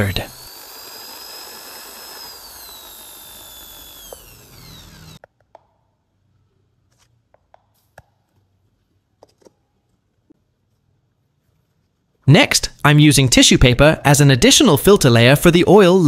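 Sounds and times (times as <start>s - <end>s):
electric drill whining: 0.0s - 5.2s.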